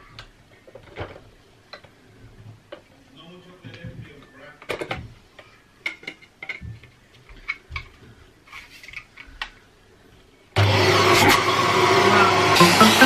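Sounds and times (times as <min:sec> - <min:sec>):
vacuum cleaner running: 0:10.6 - 0:13.0.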